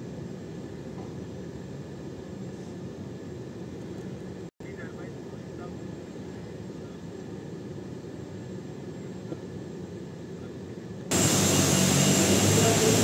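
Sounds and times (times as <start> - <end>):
jet aircraft rumble: 0.0 - 13.0
jet engine whining: 0.0 - 13.0.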